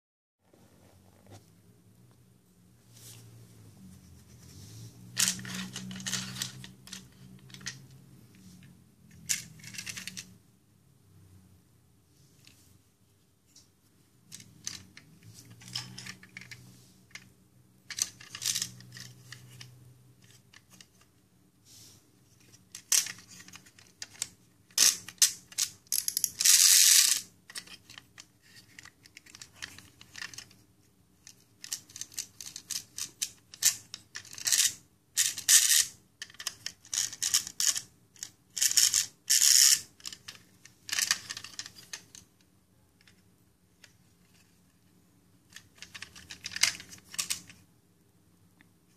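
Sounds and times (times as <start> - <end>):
clockwork toy clicking and whirring: 22.8 - 30.6, 31.2 - 42.0.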